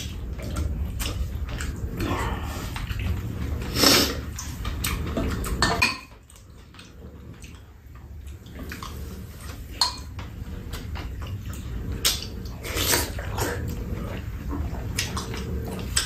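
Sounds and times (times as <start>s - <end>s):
chewing and slurping: 0.0s - 16.0s
steady low hum: 0.0s - 16.0s
utensils clicking against bowls: 8.4s - 13.6s.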